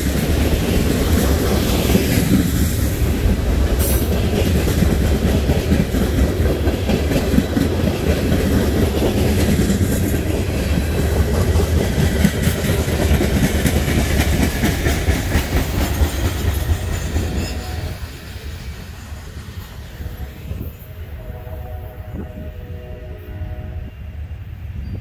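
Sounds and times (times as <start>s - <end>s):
steel wheels clicking over rail joints: 0.0s - 18.7s
train cars rumbling past: 0.0s - 25.0s.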